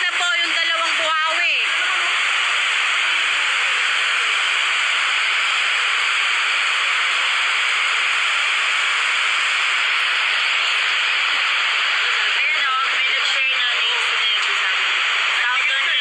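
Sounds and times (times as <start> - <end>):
steady hiss: 1.8 - 12.7.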